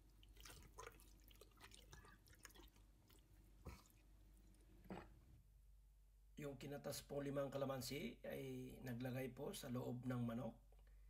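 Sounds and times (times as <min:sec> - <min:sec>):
hands squelching raw chicken: 0:00.0 - 0:04.5.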